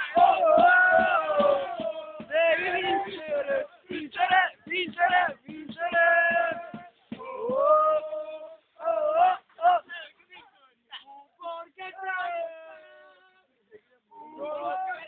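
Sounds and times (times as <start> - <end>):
football supporters chanting: 0.0 - 9.9.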